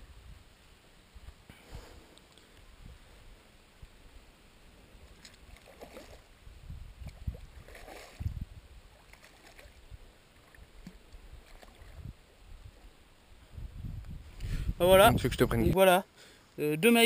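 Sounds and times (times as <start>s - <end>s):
fish splashing in water: 5.2s - 6.3s, 7.0s - 8.3s, 8.9s - 9.8s.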